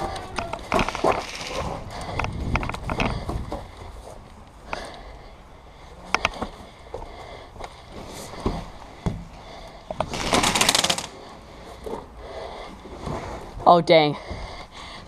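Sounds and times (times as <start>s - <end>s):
airsoft gun firing burst: 10.1s - 11.2s.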